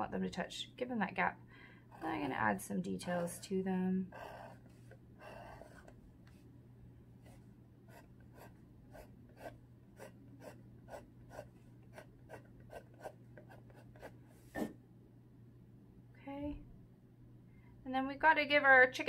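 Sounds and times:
faint low hum: 0.0 - 19.0
pencil scratching on paper: 4.1 - 6.0, 7.2 - 14.2.

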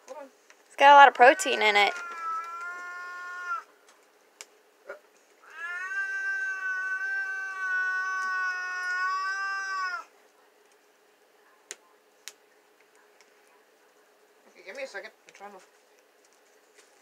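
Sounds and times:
dog whining: 1.4 - 3.7.

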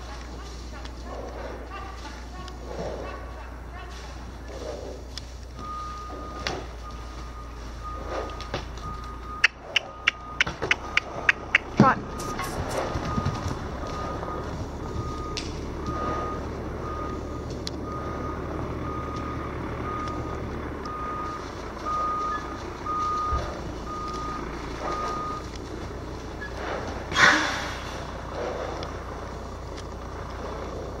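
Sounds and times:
reversing alarm beeping: 5.6 - 25.6.

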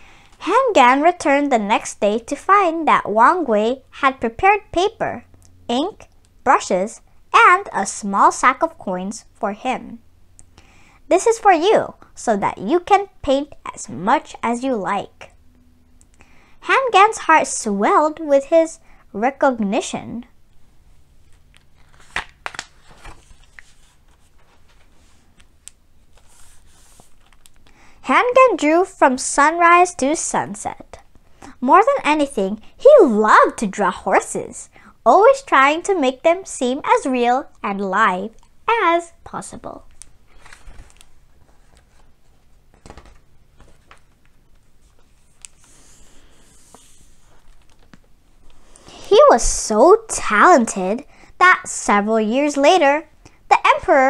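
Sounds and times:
book pages turning: 21.1 - 27.7, 39.9 - 48.7
paper rubbing: 21.2 - 25.4, 26.1 - 27.5, 44.6 - 47.8.

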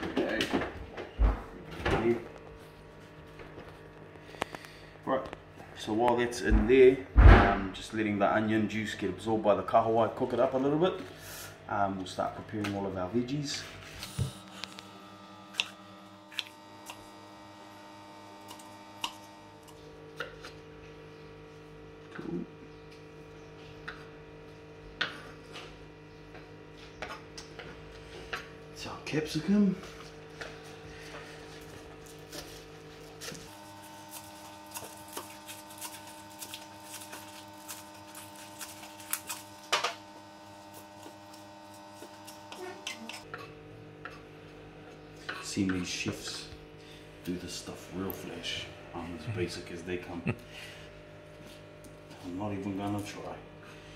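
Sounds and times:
faint hum: 0.0 - 53.9
louder knock: 6.5 - 7.6.

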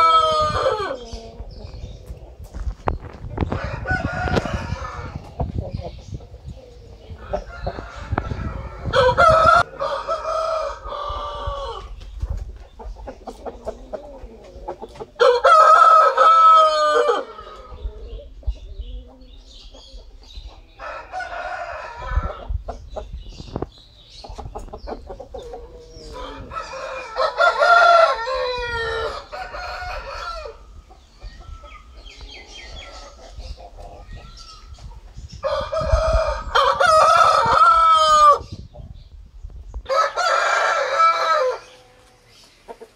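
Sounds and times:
rooster crowing: 3.5 - 5.2, 7.2 - 11.9, 15.2 - 17.8, 26.1 - 30.6, 35.4 - 38.4, 39.9 - 42.0.

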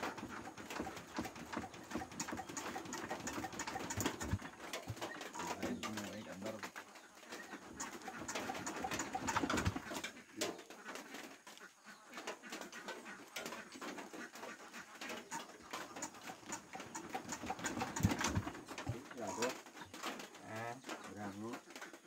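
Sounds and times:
clicks and knocks on engine: 0.0 - 6.8, 7.7 - 10.6, 15.1 - 22.0
birds calling: 0.0 - 22.0.

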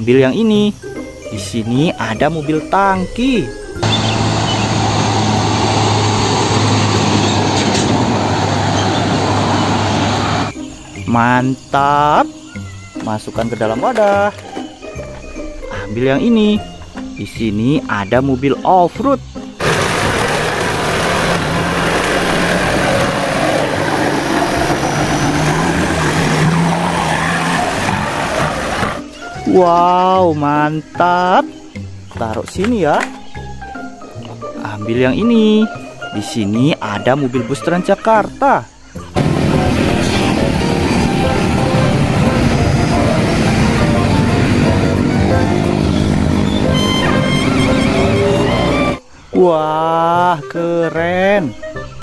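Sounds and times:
truck engine hum: 2.5 - 10.6, 19.6 - 29.2, 39.2 - 49.0
tyre and road noise: 3.6 - 10.6, 19.6 - 29.6, 39.1 - 49.0.

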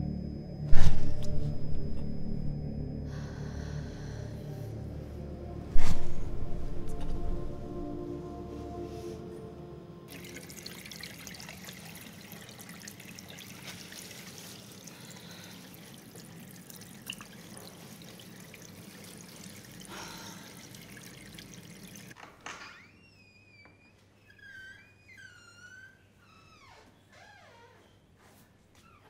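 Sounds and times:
faint background music: 0.0 - 11.6
water running from tap into sink: 10.1 - 22.2.

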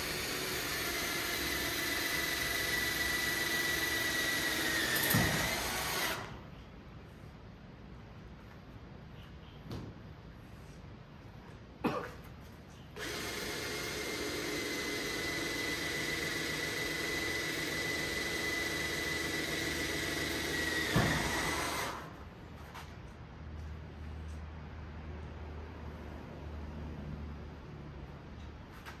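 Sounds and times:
power tool motor whine: 0.0 - 6.4, 13.0 - 22.2.

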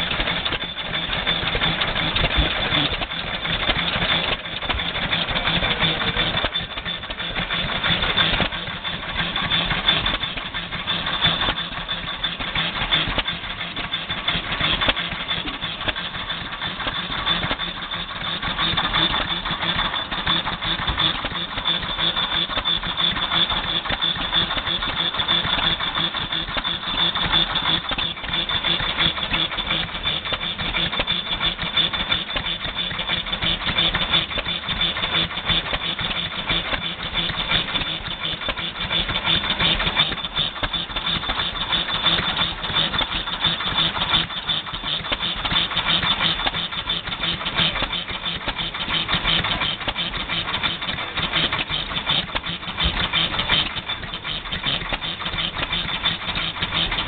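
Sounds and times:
stationary engine running: 0.0 - 57.0.

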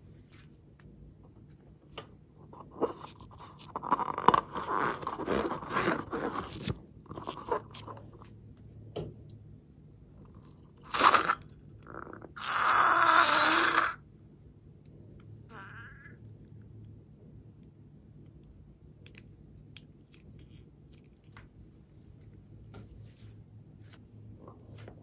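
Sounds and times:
rubber balloon crackling and squeaking: 3.0 - 7.9.

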